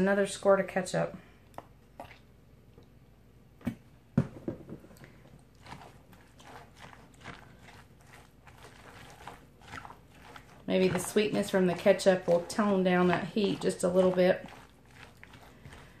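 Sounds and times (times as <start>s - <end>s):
plastic fork stirring coleslaw: 5.0s - 16.0s.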